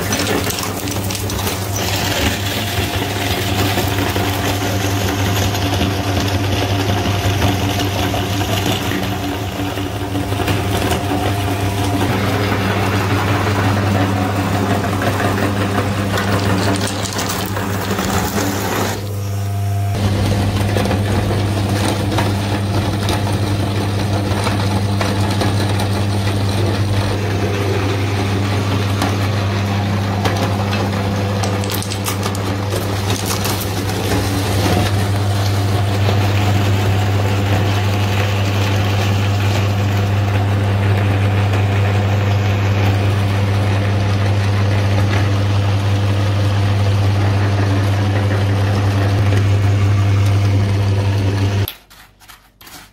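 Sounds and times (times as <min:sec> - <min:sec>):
meat grinder motor hum: 0:00.0 - 0:51.8
candy crunching: 0:31.0 - 0:35.8.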